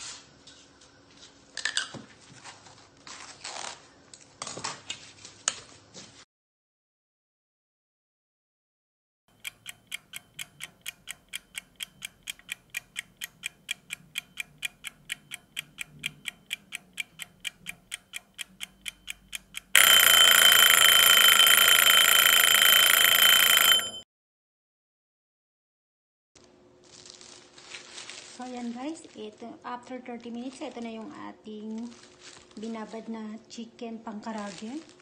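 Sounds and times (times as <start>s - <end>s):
kitchen timer ticking: 9.3s - 24.0s
timer bell ringing: 19.0s - 24.0s.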